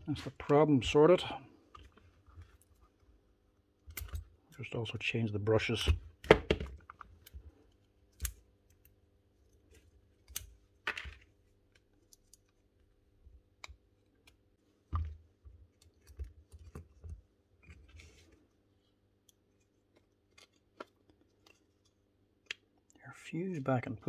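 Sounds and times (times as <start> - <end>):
small plastic and metal clicks: 3.8 - 4.6, 8.1 - 8.9.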